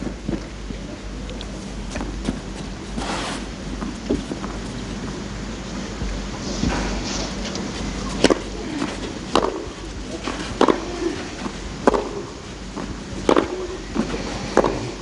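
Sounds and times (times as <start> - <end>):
tennis rackets hitting ball: 8.1 - 14.9.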